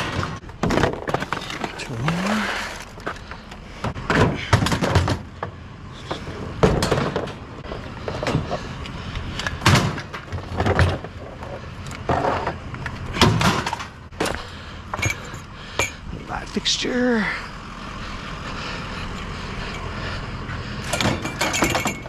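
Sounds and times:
metal fixtures knocking and clunking: 3.8 - 8.6, 20.8 - 22.0.

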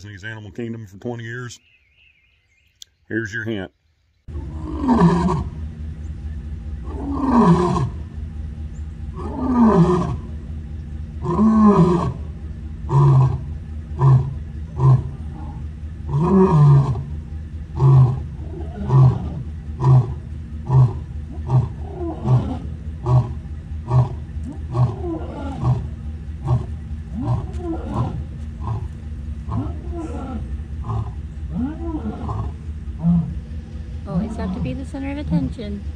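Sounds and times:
lion roaring and grunting: 4.3 - 5.6, 6.8 - 8.1, 9.1 - 10.5, 11.2 - 34.7.

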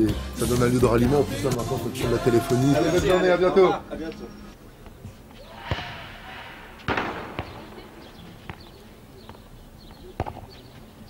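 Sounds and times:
sharp pops: 6.8 - 8.7.

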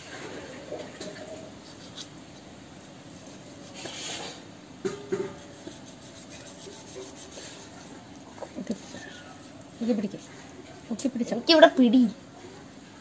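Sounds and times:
knife scraping chicken: 3.1 - 4.5, 5.2 - 7.8.

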